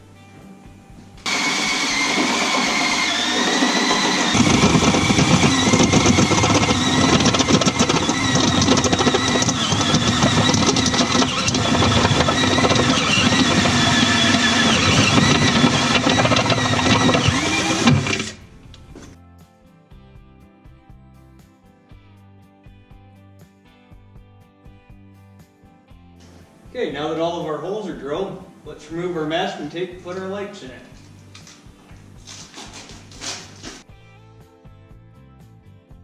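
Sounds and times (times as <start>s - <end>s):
power drill cutting metal: 1.3s - 18.4s.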